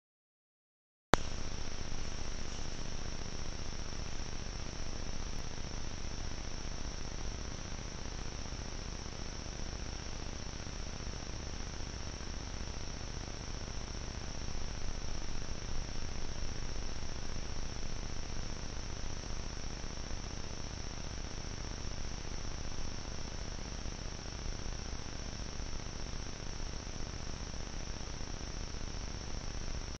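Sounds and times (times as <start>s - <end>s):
insects buzzing: 1.2s - 30.0s
microphone hiss: 1.2s - 30.0s.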